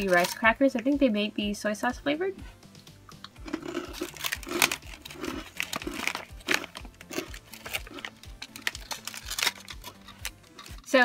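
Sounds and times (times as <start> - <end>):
plastic packaging crinkling: 0.0 - 0.4, 3.4 - 10.9.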